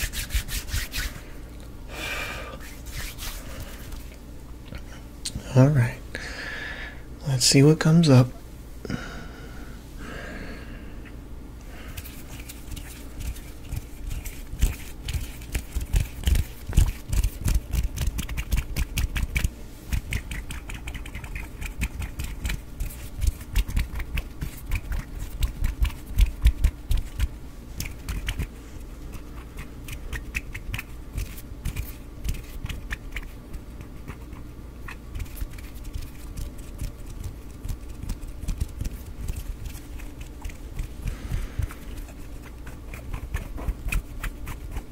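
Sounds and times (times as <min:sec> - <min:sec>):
finger clicks and rubbing: 0:12.0 - 0:28.5.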